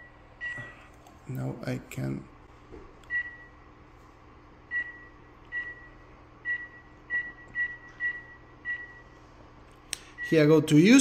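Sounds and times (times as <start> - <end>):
touchscreen key press beeps: 3.1 - 3.5, 4.7 - 5.9, 6.5 - 9.0.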